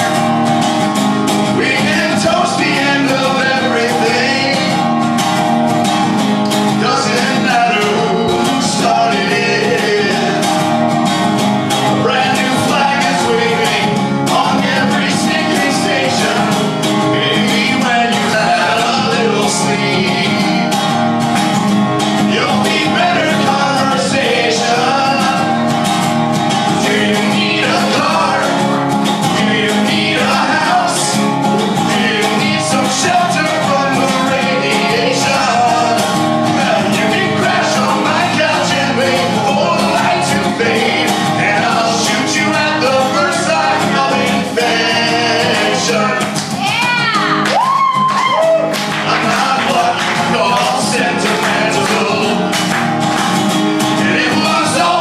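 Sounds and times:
strummed guitar: 0.0s - 55.0s
man singing: 1.5s - 5.0s, 6.7s - 10.6s, 11.9s - 20.8s, 22.2s - 25.6s, 26.7s - 28.7s, 29.3s - 46.4s, 48.6s - 52.6s, 54.0s - 55.0s.

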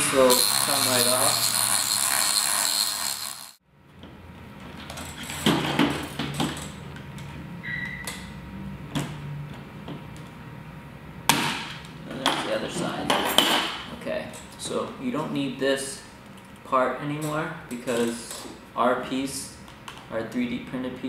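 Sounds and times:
rotary tool grinding metal: 0.0s - 3.6s.

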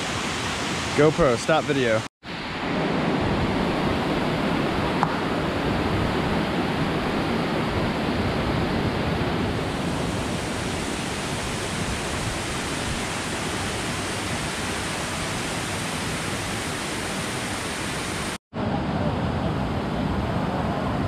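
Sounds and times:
waterfall rushing: 8.8s - 18.4s.

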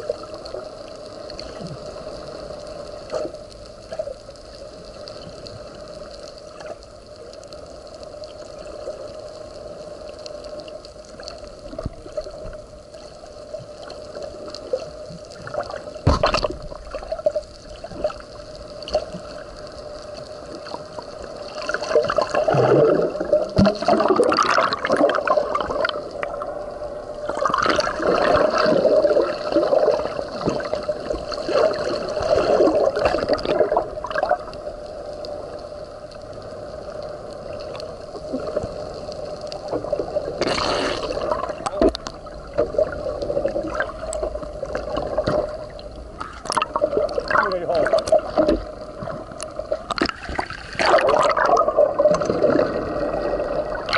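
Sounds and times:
air bubbling from a regulator: 21.5s - 34.5s, 39.9s - 53.9s.

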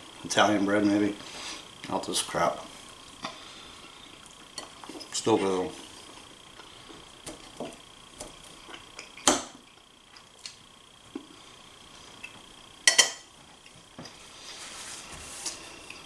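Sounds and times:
metal fork clinking on ceramic plate: 12.9s - 13.2s.

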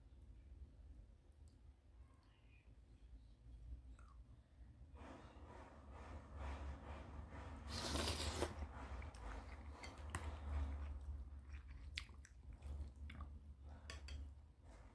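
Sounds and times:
hissing slurp: 7.6s - 8.7s
person chewing: 7.7s - 14.2s.

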